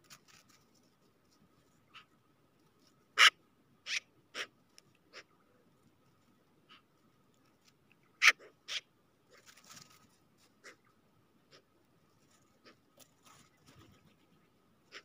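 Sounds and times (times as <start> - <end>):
wings fluttering: 0.0 - 1.8, 9.3 - 10.6, 12.1 - 14.4
birds pecking on snow: 0.0 - 15.0.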